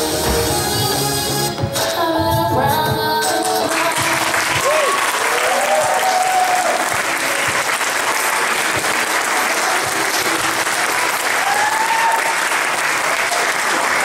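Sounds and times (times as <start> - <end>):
audience applauding: 3.6 - 14.0.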